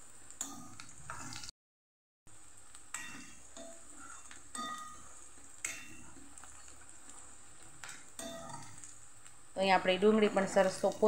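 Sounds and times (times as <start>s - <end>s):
onions sizzling in oil: 0.0s - 1.5s, 2.3s - 11.0s.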